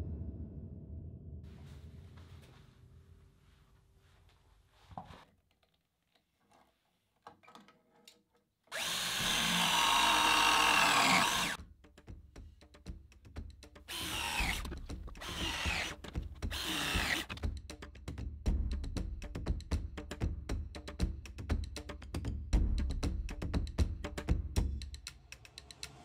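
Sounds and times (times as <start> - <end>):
press tool motor whining: 8.7 - 11.6, 14.0 - 15.9, 16.6 - 17.4.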